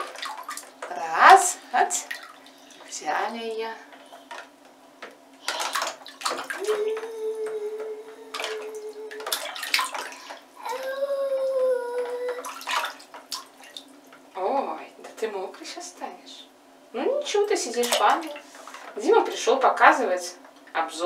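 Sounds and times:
toddler vocal tones: 6.5 - 9.4, 10.6 - 12.6.

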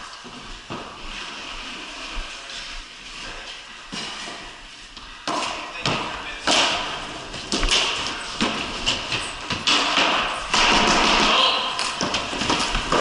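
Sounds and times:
hockey sticks clacking on ball: 5.0 - 13.0.

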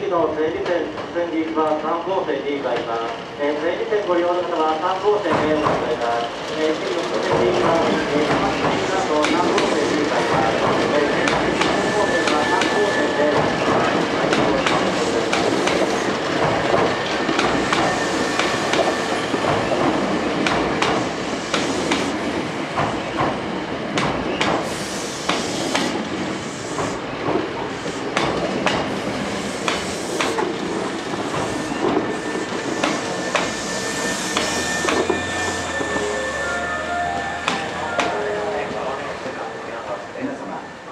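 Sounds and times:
train rumble: 2.6 - 40.9
train wheels clacking over rail joints: 5.3 - 35.9.

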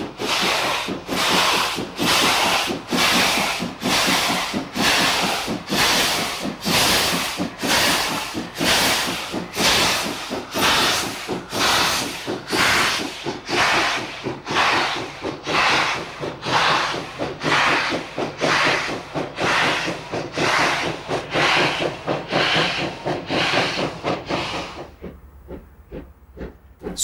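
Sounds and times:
steam locomotive chuffing: 0.0 - 27.0.

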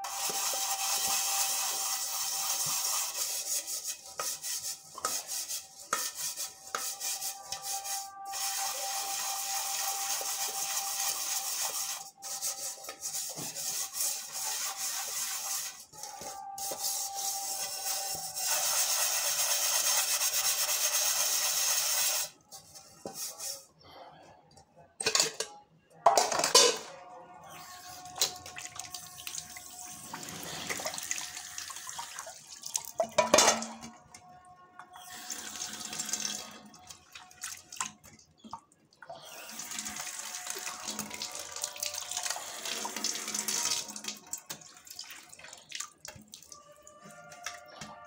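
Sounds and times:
steel pots clanking together: 25.0 - 26.9, 33.0 - 34.0
water splashing from pots: 28.2 - 34.0, 35.2 - 46.7.

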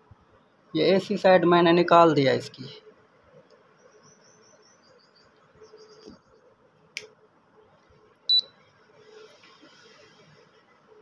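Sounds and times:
click: 6.9 - 7.1
short high-pitched electronic beep: 8.3 - 8.5.

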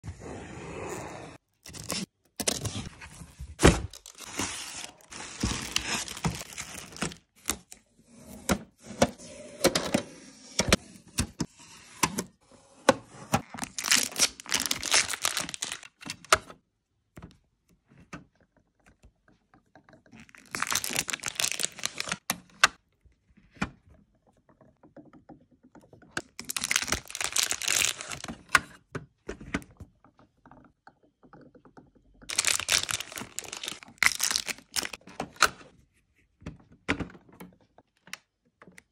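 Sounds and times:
plastic packaging crinkling: 3.9 - 7.6, 13.5 - 16.2, 20.2 - 22.2, 26.3 - 28.4, 32.3 - 35.0.

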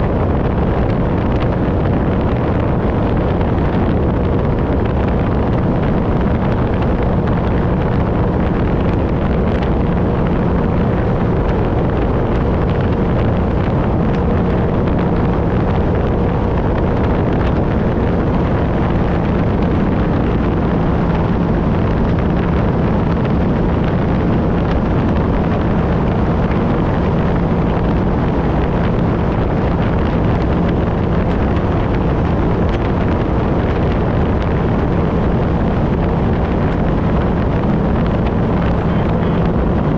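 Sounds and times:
personal watercraft engine: 0.0 - 39.9
wind buffeting microphone: 0.0 - 39.9.

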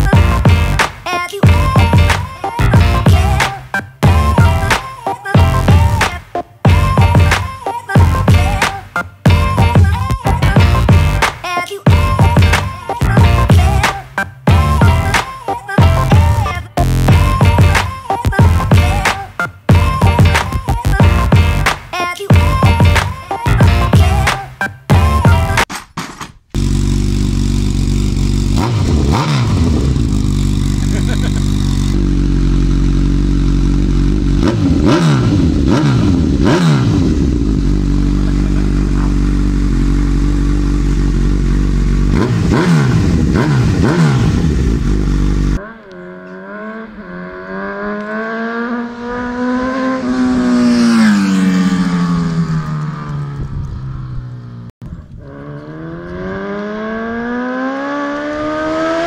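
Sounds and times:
motorcycle engine idling and revving: 0.0 - 25.6, 26.5 - 59.0
motorcycle accelerating past: 26.6 - 32.1, 33.6 - 39.6, 41.3 - 59.0.

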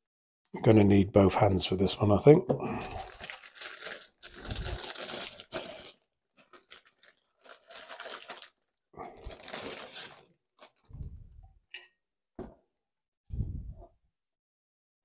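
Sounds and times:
plastic bag crinkling: 2.8 - 10.9.

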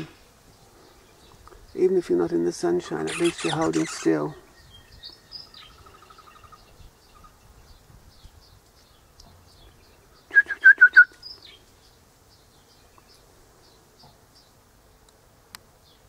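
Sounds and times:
parrot piping notes: 3.0 - 4.2
bird trill: 3.0 - 7.5
bird whistles: 10.3 - 11.4.

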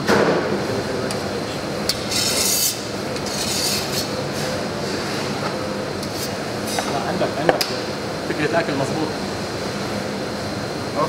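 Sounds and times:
kitchen ventilation hum: 0.0 - 11.0
utensil scraping: 1.9 - 5.4.

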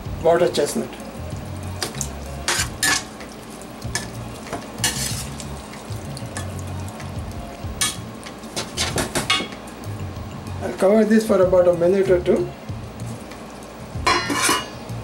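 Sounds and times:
vegetables sizzling in a pan: 0.0 - 15.0
metal spoon scraping a pan: 2.4 - 3.1, 4.8 - 5.4, 14.1 - 14.8.

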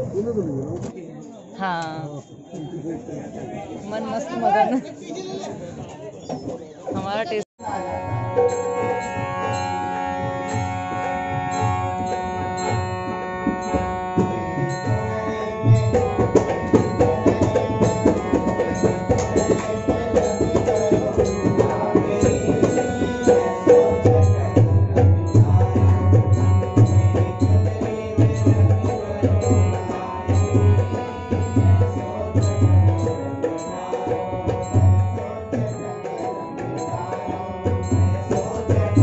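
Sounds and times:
harmonium chords: 7.6 - 39.0
man singing: 13.8 - 39.0.

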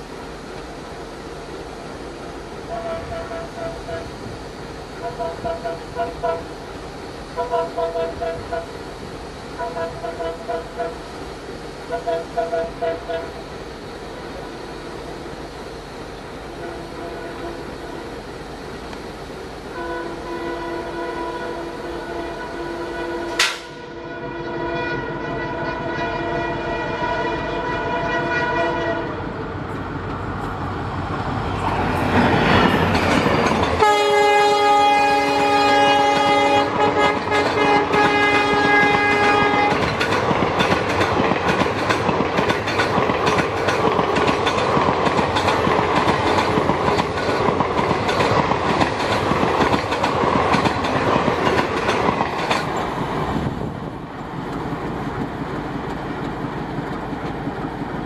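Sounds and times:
locomotive passing: 0.0 - 58.0
locomotive multi-note horn: 2.6 - 4.1, 5.0 - 6.5, 7.4 - 8.8, 9.6 - 11.0, 11.9 - 13.4, 16.5 - 18.2, 19.7 - 29.4, 33.8 - 40.0
train wheels clattering over rail joints: 23.3 - 23.8, 31.7 - 58.0.

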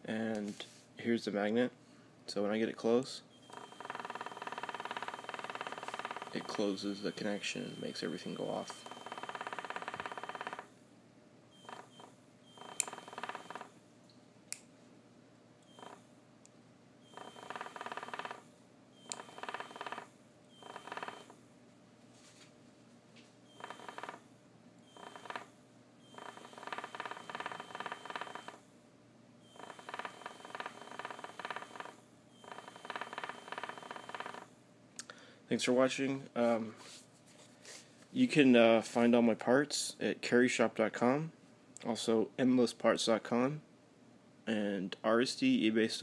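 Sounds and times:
electronic buzzer buzzing: 3.3 - 10.7, 11.5 - 13.8, 15.6 - 16.0, 17.0 - 21.4, 23.4 - 28.6, 29.4 - 34.5.

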